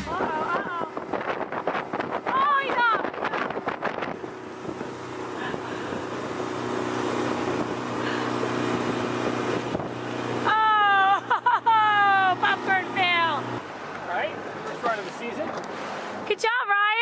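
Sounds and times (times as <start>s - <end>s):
motorboat engine running: 0.0s - 16.3s
wind: 0.0s - 17.0s
rushing water: 12.4s - 16.3s.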